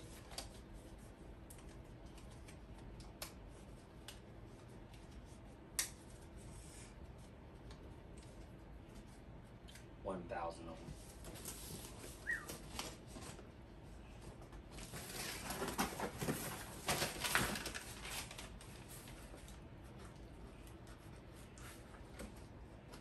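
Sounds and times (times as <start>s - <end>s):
packaging rustling and scraping: 14.7s - 19.4s.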